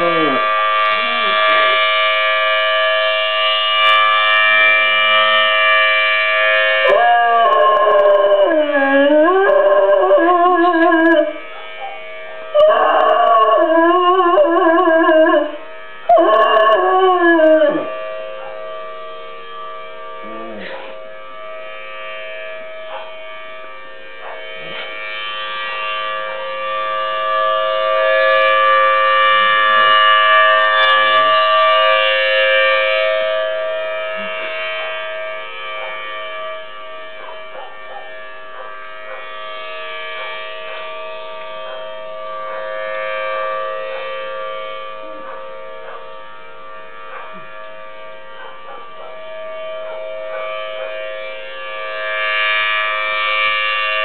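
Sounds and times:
dog howling: 0:00.0 - 0:01.8, 0:06.8 - 0:18.7, 0:20.2 - 0:21.0, 0:22.8 - 0:23.2, 0:24.2 - 0:25.0, 0:34.1 - 0:36.2, 0:37.2 - 0:39.4, 0:40.2 - 0:42.8, 0:44.9 - 0:47.5, 0:48.3 - 0:51.3
civil defense siren wailing: 0:00.0 - 0:54.0.

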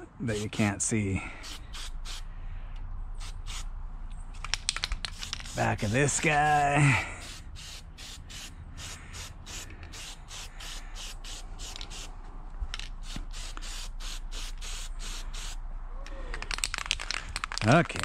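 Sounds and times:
spray paint can hissing: 0:01.4 - 0:02.2, 0:03.2 - 0:03.7, 0:04.4 - 0:06.6, 0:07.2 - 0:12.1, 0:12.8 - 0:15.6.

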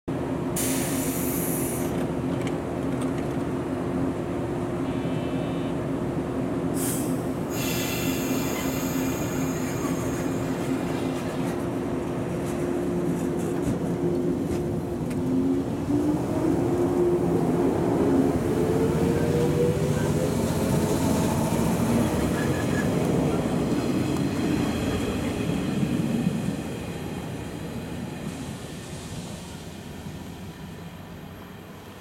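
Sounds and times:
electric train humming: 0:03.8 - 0:32.0
compressed air hisses: 0:06.8 - 0:10.6
train pulling away: 0:06.8 - 0:11.6, 0:12.5 - 0:31.2.

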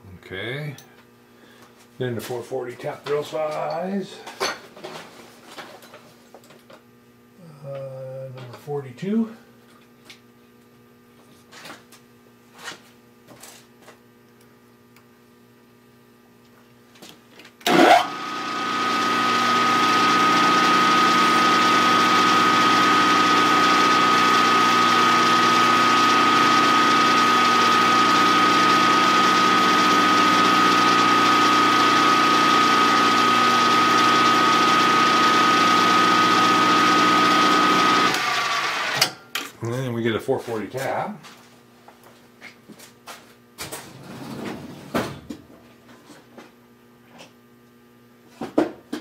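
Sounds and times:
milling machine spindle whine: 0:17.7 - 0:39.0.

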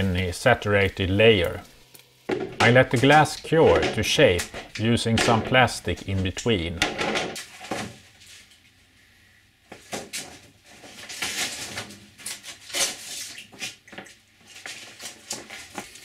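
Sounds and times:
plastic sheeting rustling: 0:10.0 - 0:16.0.

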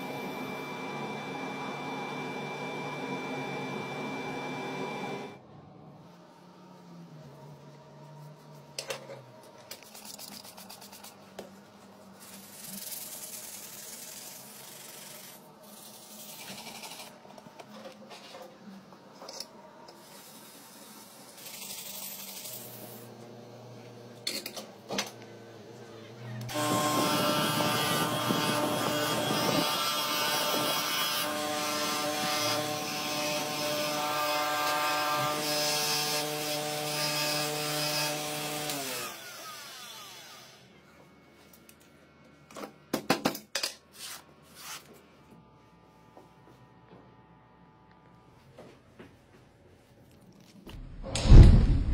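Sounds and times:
electric grinding wheel whining: 0:25.9 - 0:36.5
rubbing and scraping on steel blade: 0:43.9 - 0:44.9.

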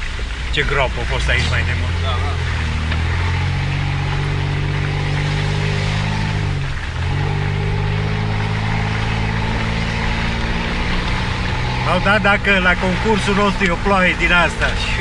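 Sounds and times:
engine running under load: 0:00.0 - 0:15.0.

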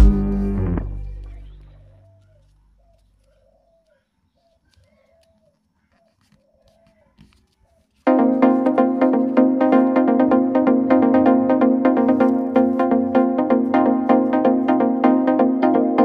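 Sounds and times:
faint bird call: 0:01.2 - 0:08.0
loud electronic music with beat: 0:08.1 - 0:16.0.

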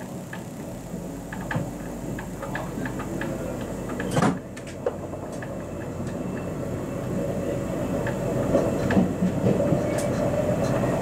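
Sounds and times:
steady hum: 0:00.0 - 0:09.3
train rail rumble: 0:00.0 - 0:11.0.

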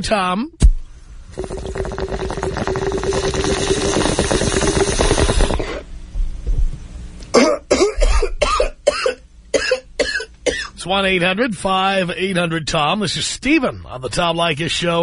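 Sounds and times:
water bubbling through a bong: 0:01.2 - 0:05.9
person coughing harshly: 0:07.3 - 0:10.8.

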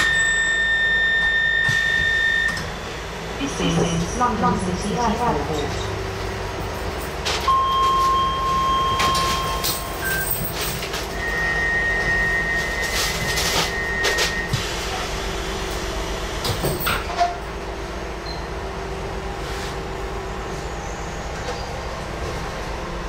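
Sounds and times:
electronic door warning tone: 0:00.0 - 0:04.2, 0:07.5 - 0:10.6, 0:11.2 - 0:14.6
train hum: 0:00.0 - 0:23.0.

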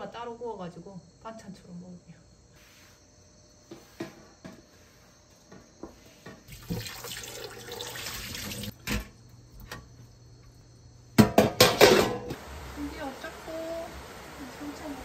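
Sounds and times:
kitchen tap running into sink: 0:06.5 - 0:08.9.

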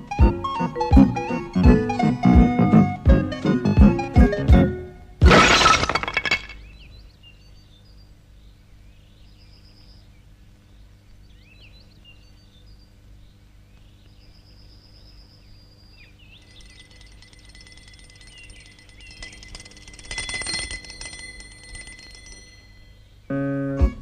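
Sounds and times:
low steady hum: 0:04.6 - 0:24.0
faint birdsong: 0:06.4 - 0:24.0
bird trill: 0:14.0 - 0:23.4.

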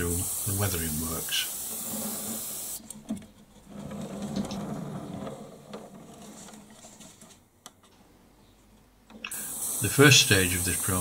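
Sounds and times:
turntable base rumbling: 0:03.1 - 0:07.2.

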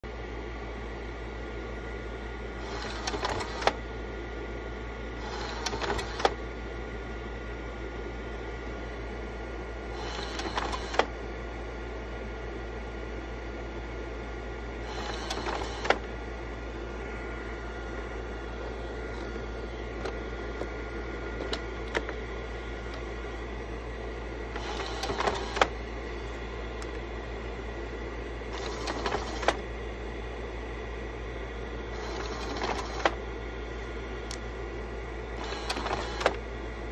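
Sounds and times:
projector cooling fan running: 0:00.0 - 0:36.9
slide change mechanism whirring: 0:02.6 - 0:03.8, 0:05.2 - 0:06.4, 0:10.0 - 0:11.2, 0:14.8 - 0:16.2, 0:18.6 - 0:23.6, 0:24.4 - 0:27.1, 0:28.4 - 0:29.7, 0:31.9 - 0:33.2, 0:35.4 - 0:36.5
slide change rattle and click: 0:24.6 - 0:25.8.

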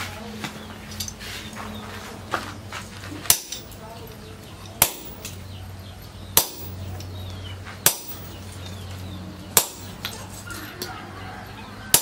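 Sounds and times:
hammer striking hot steel on anvil: 0:03.2 - 0:03.8, 0:04.7 - 0:05.4, 0:06.3 - 0:07.2, 0:07.8 - 0:08.6, 0:09.5 - 0:10.2.

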